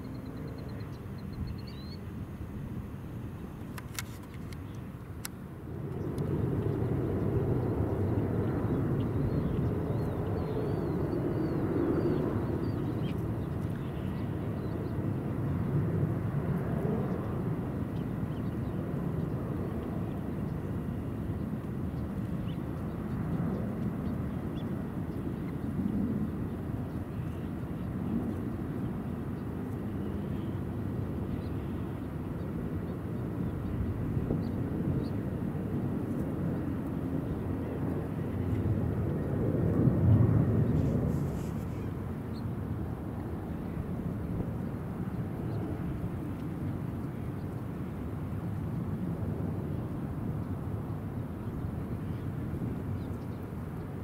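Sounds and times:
faint high bird chirps: 0:00.0 - 0:02.0.

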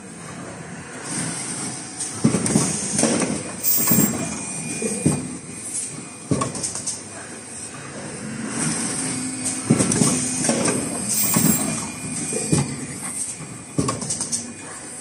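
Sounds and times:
machine clunking and clattering: 0:02.2 - 0:04.4, 0:09.7 - 0:12.8.

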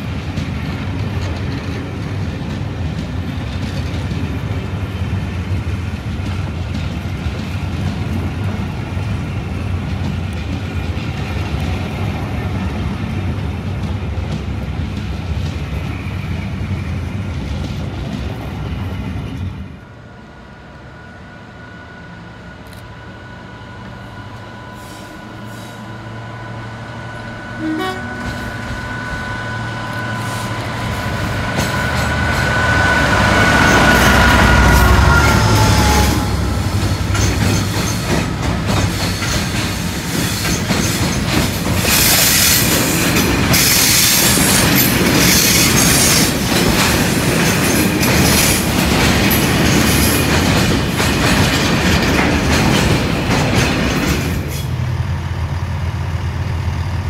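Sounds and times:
diesel locomotive engines rumbling: 0:00.0 - 0:57.0
high two-note whine: 0:27.5 - 0:30.9.

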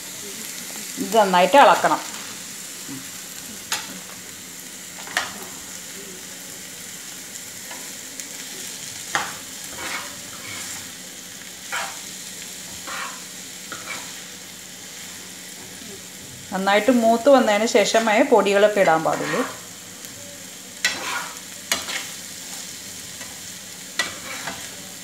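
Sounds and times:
onions sizzling in hot oil: 0:00.0 - 0:25.0
spoon scraping and knocking pan: 0:09.1 - 0:10.8, 0:11.7 - 0:12.0, 0:12.7 - 0:14.2, 0:18.9 - 0:19.6, 0:20.8 - 0:22.2, 0:24.0 - 0:24.7.

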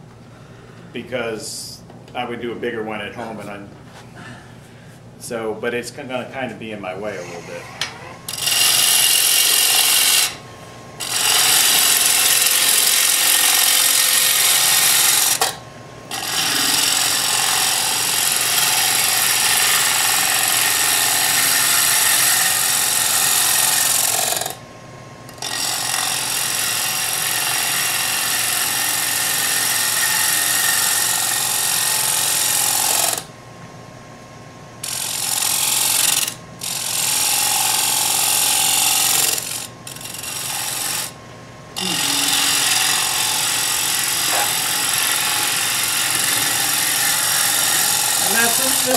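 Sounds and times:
faint lathe hum: 0:02.7 - 0:48.9
wood shavings hissing on lathe: 0:08.3 - 0:10.4, 0:11.0 - 0:15.4, 0:16.1 - 0:24.2, 0:41.8 - 0:48.9.

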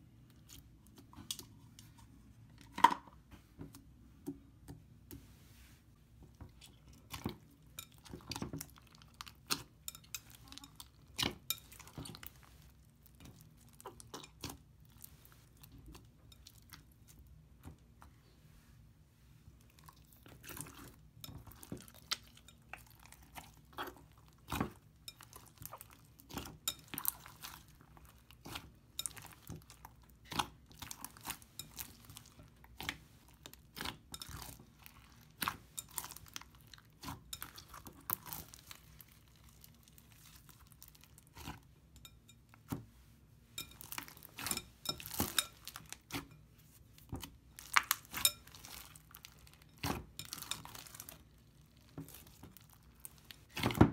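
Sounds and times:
slime squelching and popping: 0:47.0 - 0:53.9.

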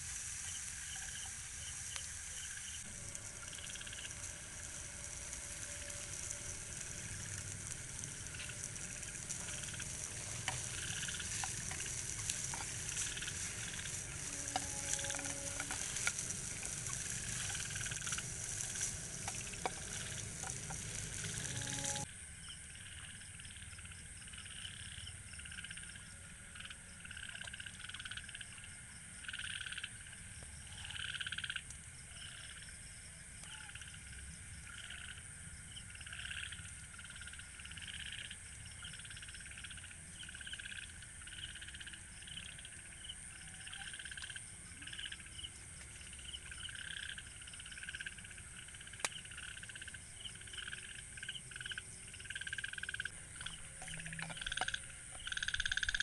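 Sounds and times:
frogs croaking: 0:00.3 - 0:56.0
high-pitched drone: 0:02.8 - 0:22.1.

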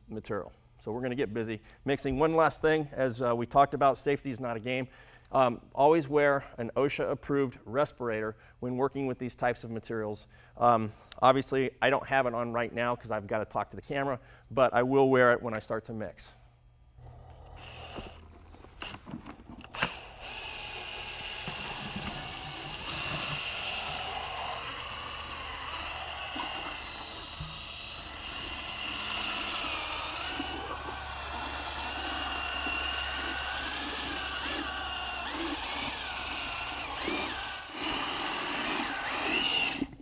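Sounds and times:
drill mixing in plastic bucket: 0:17.0 - 0:40.0.

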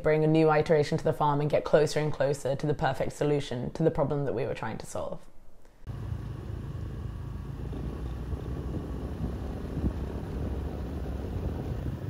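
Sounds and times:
steady low rumble: 0:05.9 - 0:12.0.

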